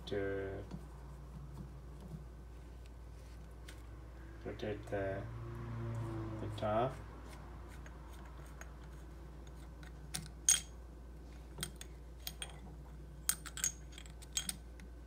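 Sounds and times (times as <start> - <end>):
metallic clicks and clinks: 13.2 - 14.6.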